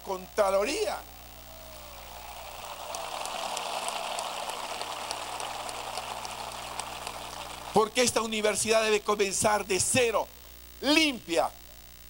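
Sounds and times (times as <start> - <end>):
audience applauding: 1.4 - 8.2.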